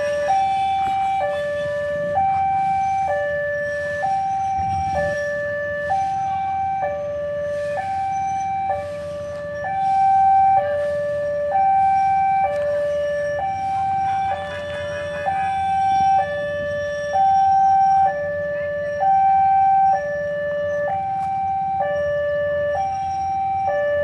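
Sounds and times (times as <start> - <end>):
two-tone crossing alarm: 0.0 - 24.0.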